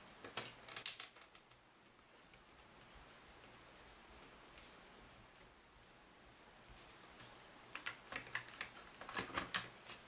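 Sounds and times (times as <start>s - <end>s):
hands clicking and tapping plastic: 7.6s - 10.0s.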